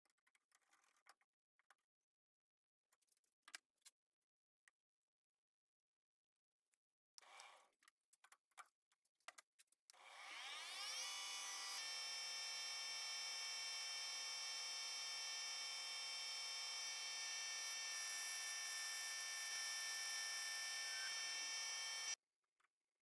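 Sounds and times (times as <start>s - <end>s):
metal lathe whining: 10.2s - 22.2s.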